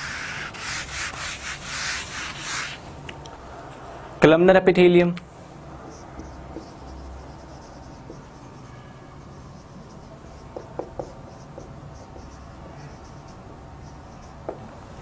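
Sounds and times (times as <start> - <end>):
marker writing on whiteboard: 0.0 - 2.8, 5.9 - 14.7
light marker taps: 6.2 - 6.8, 10.5 - 11.7.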